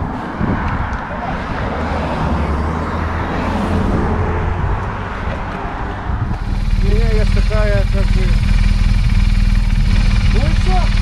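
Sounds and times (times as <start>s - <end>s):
highway traffic rumble: 0.0s - 11.0s.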